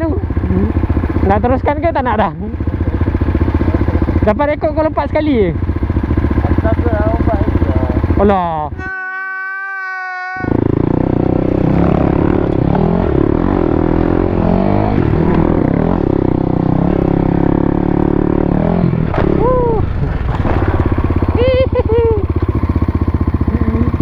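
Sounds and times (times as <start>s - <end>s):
motorcycle engine revving: 0.0s - 8.8s, 10.4s - 24.0s
short pitched cry: 8.7s - 10.6s.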